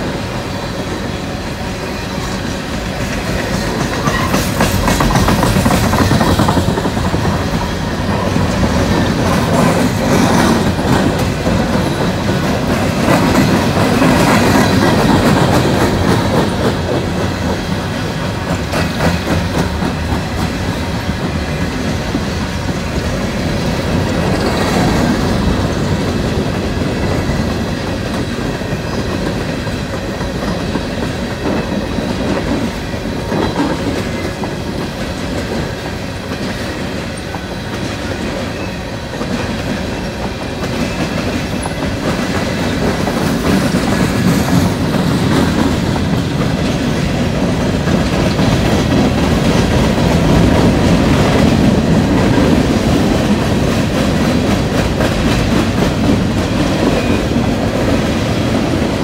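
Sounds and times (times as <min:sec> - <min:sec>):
train wheels rumbling on rails: 0:00.0 - 0:59.0
wheels clicking over rail joints: 0:02.2 - 0:59.0.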